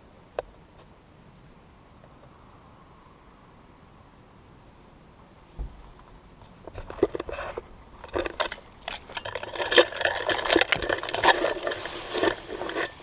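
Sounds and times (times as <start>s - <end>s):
shrub leaves rustling and scraping: 5.3s - 13.0s
leaves brushing against phone: 8.6s - 13.0s.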